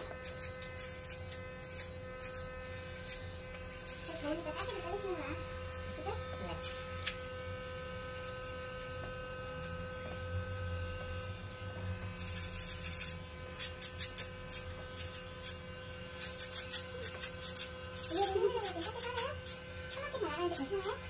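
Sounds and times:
electric hair clippers buzzing: 0.0 - 21.0
clipper blades crackling in hair: 0.2 - 4.8, 6.6 - 7.2, 12.2 - 15.6, 16.2 - 21.0.

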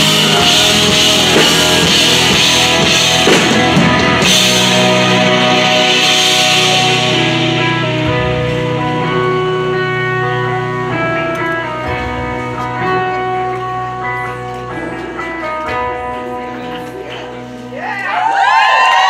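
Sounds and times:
drums and cymbals: 0.0 - 9.3
electric guitar chord ringing: 0.0 - 17.8.

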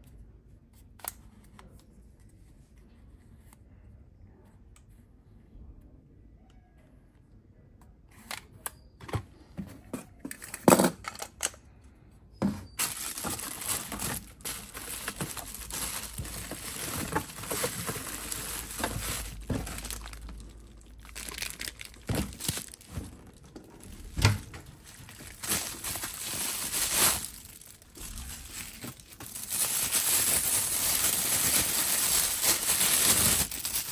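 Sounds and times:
bubble wrap crinkling: 12.8 - 33.9.

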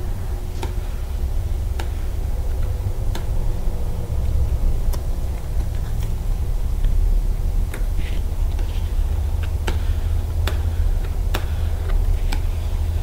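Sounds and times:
low steady hum: 0.0 - 13.0
squeegee plastic clicks: 9.4 - 12.7.

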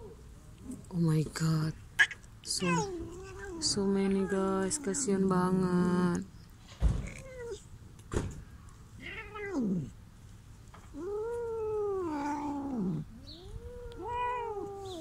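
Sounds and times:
cats meowing: 2.0 - 5.6, 6.8 - 7.7, 9.0 - 10.0, 10.8 - 15.0.

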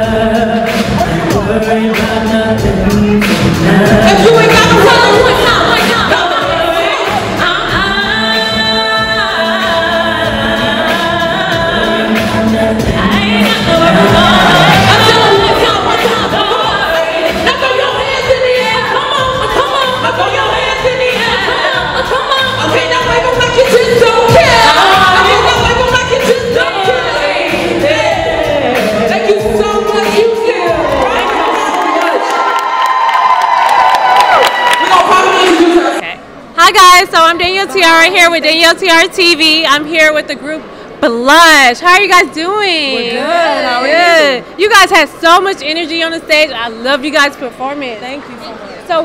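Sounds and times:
backing music: 0.0 - 36.0
women singing into microphones: 3.6 - 32.2.

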